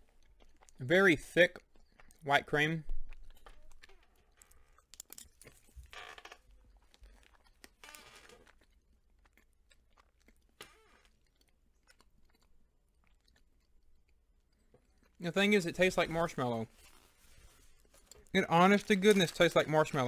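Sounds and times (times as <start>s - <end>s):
chewing and wet mouth sounds: 0.0s - 20.0s.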